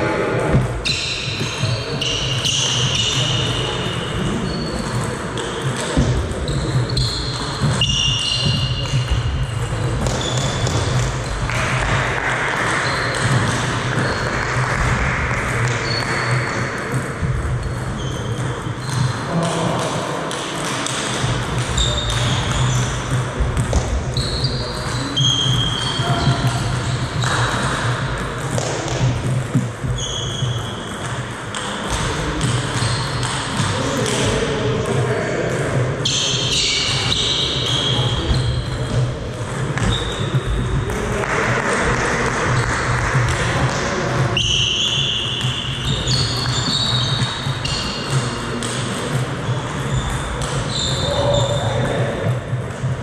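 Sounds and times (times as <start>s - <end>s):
ping-pong balls bouncing: 0.0s - 53.0s
shoe squeaks on wooden floor: 0.5s - 11.4s, 15.7s - 17.0s, 17.6s - 19.1s, 21.7s - 23.2s, 24.0s - 27.8s, 29.6s - 31.1s, 36.0s - 40.8s, 44.3s - 52.1s.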